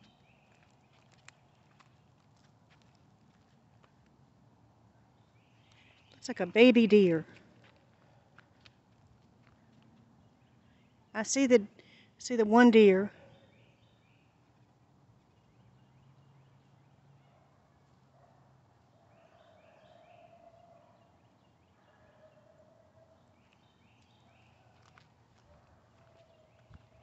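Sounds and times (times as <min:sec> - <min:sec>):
faint distant bird calls: 0:13.1 - 0:27.0.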